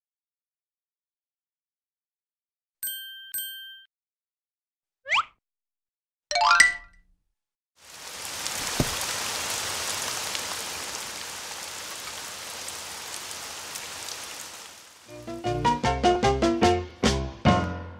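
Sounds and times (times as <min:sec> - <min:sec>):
steady rain falling: 0:07.8 - 0:15.6.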